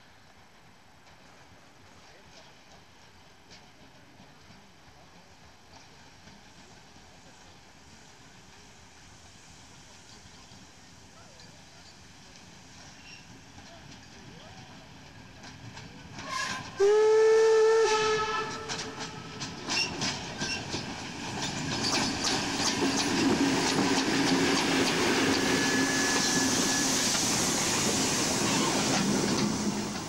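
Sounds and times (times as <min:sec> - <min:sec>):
steam hissing: 0:04.7 - 0:30.0
locomotive clicking and clanking: 0:18.4 - 0:27.3
steam whistle chime: 0:25.4 - 0:27.1.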